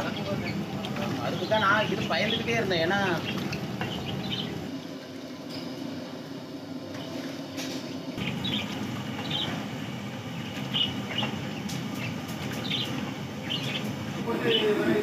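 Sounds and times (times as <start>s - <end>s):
small birds chirping: 0.0s - 4.7s, 8.2s - 14.8s
low rumbling hiss: 0.0s - 6.9s.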